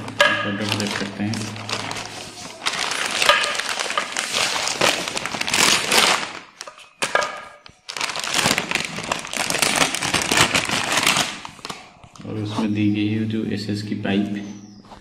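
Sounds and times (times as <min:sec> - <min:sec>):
plastic packaging crinkling: 0:00.0 - 0:12.3.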